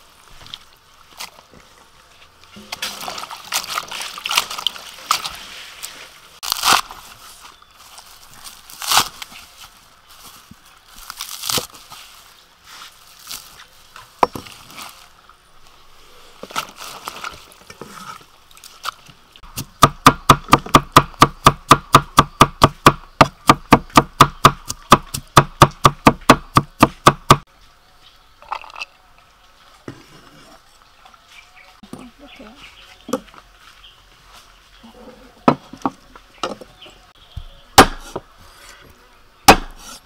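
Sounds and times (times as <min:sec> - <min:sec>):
cleaver chopping on wooden block: 0:19.6 - 0:27.4, 0:37.8 - 0:38.2, 0:39.5 - 0:40.0.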